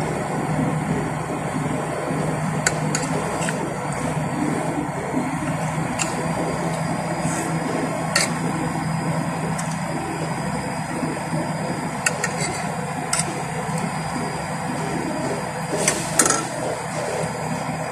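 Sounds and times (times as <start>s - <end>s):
steady low hum: 0.0s - 17.9s.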